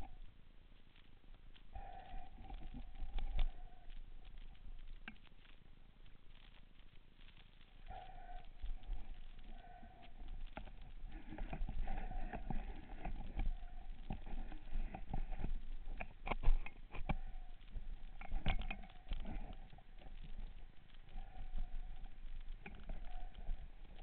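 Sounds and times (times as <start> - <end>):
low rumble: 1.6 - 24.0
muffled underwater knocks and clicks: 8.9 - 24.0.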